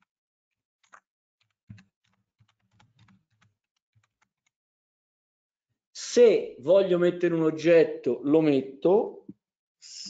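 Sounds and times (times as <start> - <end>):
keystrokes on computer keyboard: 0.8 - 4.6.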